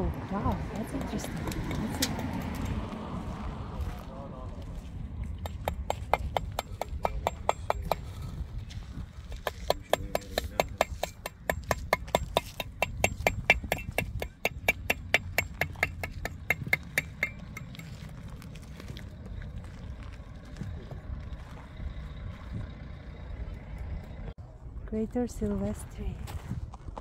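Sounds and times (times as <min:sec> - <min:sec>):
hammer chipping rock: 0:05.4 - 0:08.3, 0:09.3 - 0:18.0.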